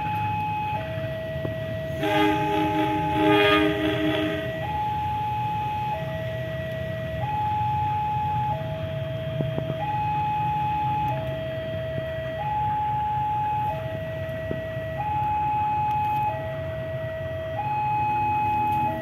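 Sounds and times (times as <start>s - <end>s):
two-tone level crossing alarm: 0.0s - 8.8s, 14.8s - 19.0s
locomotive diesel rumble: 0.0s - 19.0s.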